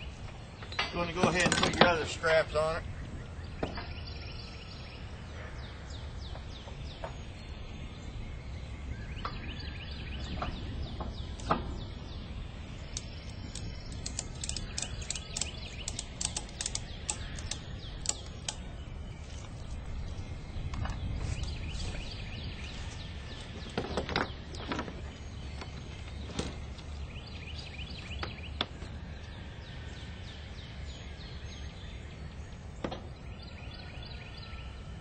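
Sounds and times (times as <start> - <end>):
birds chirping faintly: 0.0 - 35.0
strap hardware clicking: 12.9 - 18.7.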